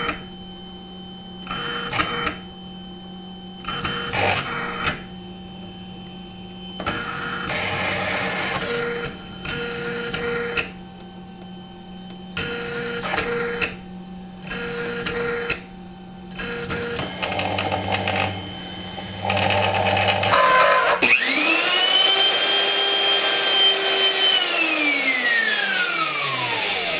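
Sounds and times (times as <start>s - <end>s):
loud motor whine: 0.0s - 26.9s
carving machine motors whining: 6.8s - 10.7s, 16.4s - 26.9s.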